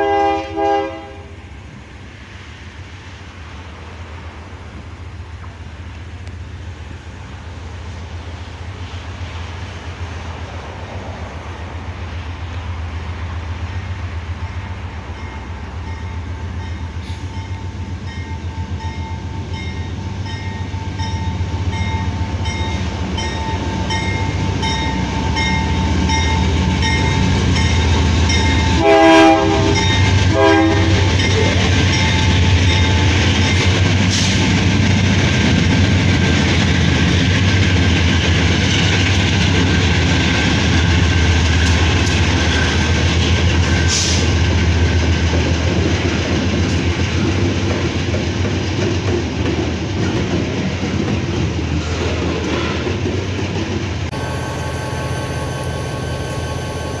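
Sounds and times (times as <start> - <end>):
train horn blasts: 0.0 - 1.4, 28.5 - 31.6
locomotive engine drone: 0.0 - 47.8, 52.4 - 57.0.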